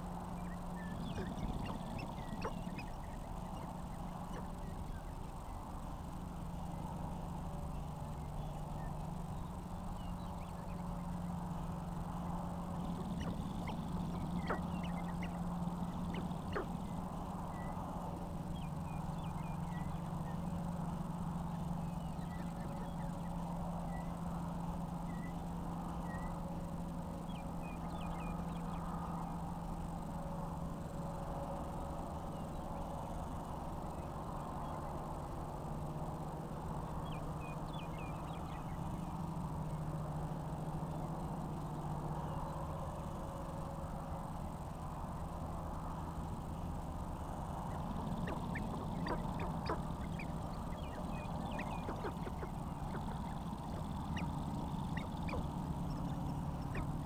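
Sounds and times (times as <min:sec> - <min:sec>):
grouse clucking calls: 0:00.0 - 0:05.4, 0:12.6 - 0:23.4, 0:47.6 - 0:57.0
steady low hum: 0:00.0 - 0:57.0
faint high chirps: 0:00.3 - 0:05.2, 0:47.6 - 0:57.0.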